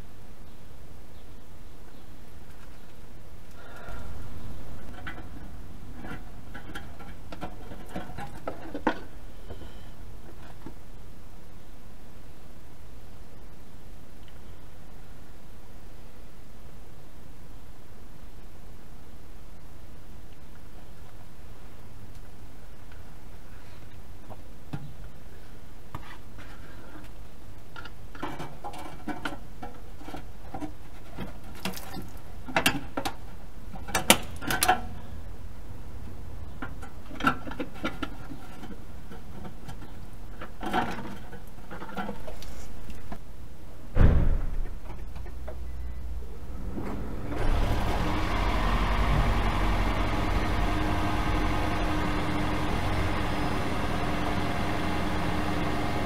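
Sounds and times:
heavy thump: 43.9 - 44.9
car engine running: 46.5 - 56.0.

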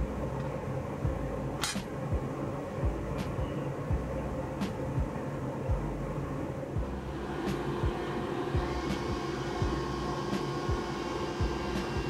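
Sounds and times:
low machine hum: 0.0 - 12.0
soft low thumps: 1.0 - 1.5, 2.8 - 6.1, 6.8 - 7.0.

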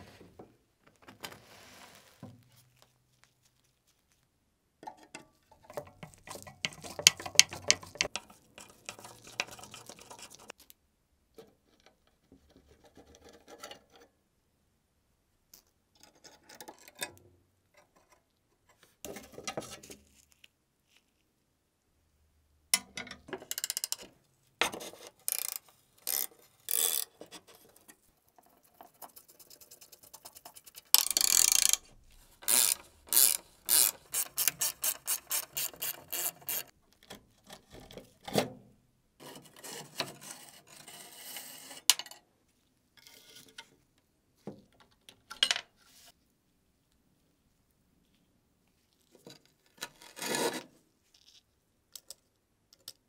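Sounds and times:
rusted screws creaking: 25.2 - 27.2, 30.9 - 36.7
wrench clicking: 31.0 - 36.7.

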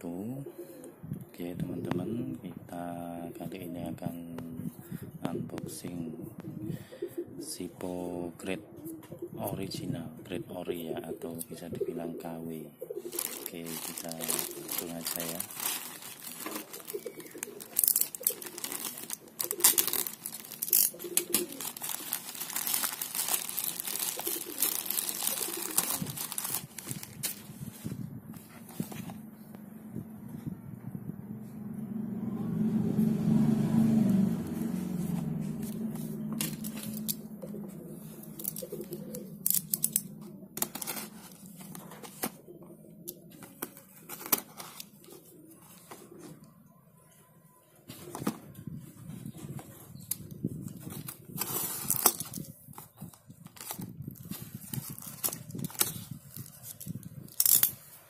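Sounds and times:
plastic bag crinkling: 13.0 - 27.6, 36.4 - 37.2, 38.2 - 42.3, 53.5 - 57.7.

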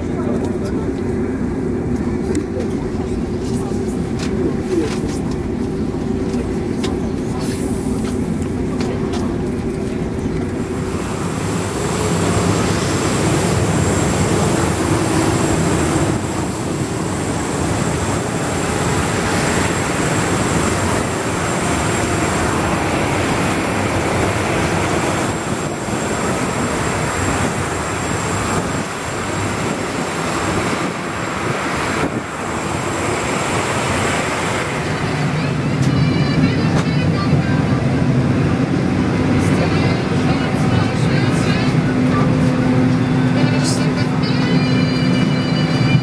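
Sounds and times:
aircraft rushing noise: 0.0 - 44.5
high whine: 3.2 - 46.0.

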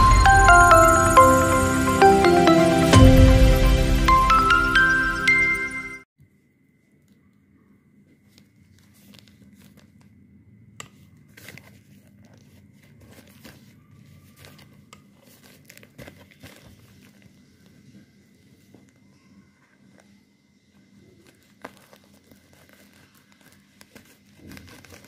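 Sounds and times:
plastic mailer crinkling and rustling: 8.2 - 10.1, 11.3 - 17.9, 21.0 - 25.0.

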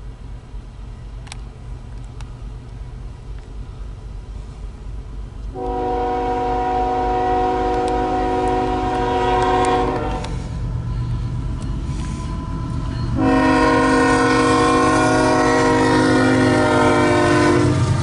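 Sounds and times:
locomotive air horn: 5.5 - 10.6, 11.8 - 18.0.

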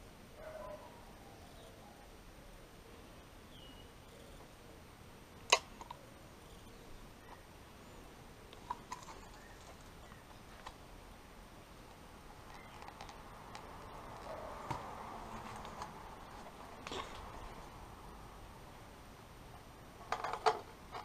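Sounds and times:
handling clicks and knocks: 8.5 - 10.8, 11.9 - 17.3.

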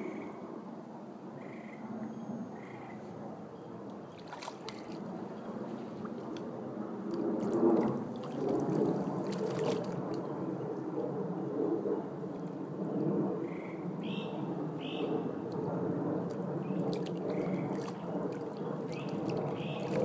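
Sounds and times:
fish thrashing and splashing: 4.1 - 5.2, 7.1 - 10.4, 16.3 - 20.0.

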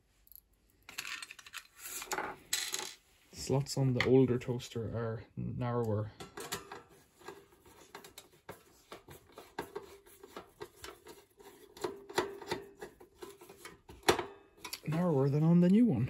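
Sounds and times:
screwdriver clicking and scraping metal: 7.2 - 13.8.

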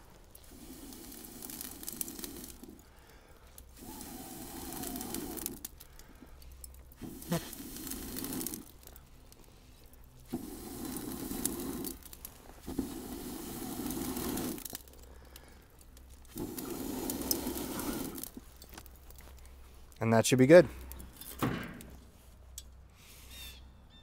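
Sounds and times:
coals crackling and popping: 0.0 - 22.9
person blowing hard: 3.7 - 5.7, 7.0 - 8.7, 10.3 - 14.9, 16.3 - 18.4.

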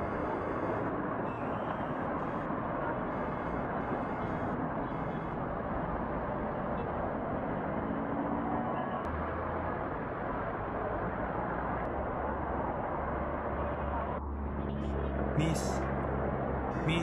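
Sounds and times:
bus engine and road noise: 0.0 - 17.0.

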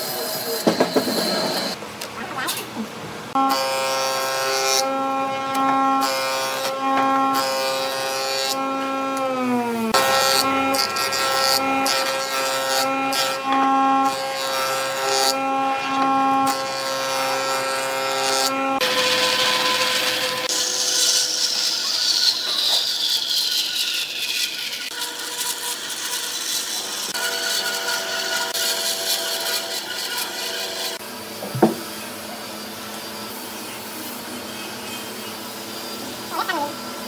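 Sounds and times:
jointer whining: 0.0 - 1.8, 29.1 - 32.2
bandsaw rasping: 3.4 - 31.8.

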